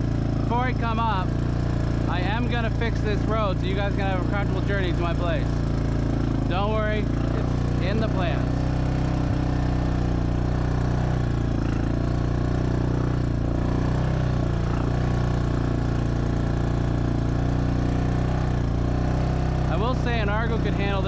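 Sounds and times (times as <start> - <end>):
quad bike engine running: 0.0 - 21.0.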